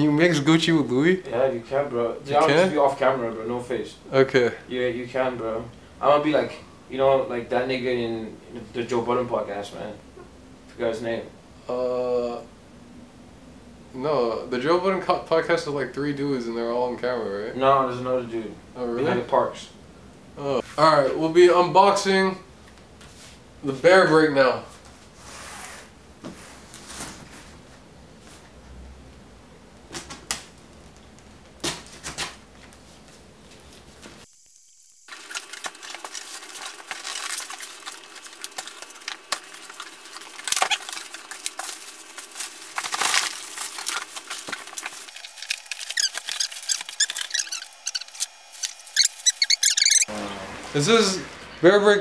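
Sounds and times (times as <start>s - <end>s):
rustling of packing paper: 35.1s - 50.1s.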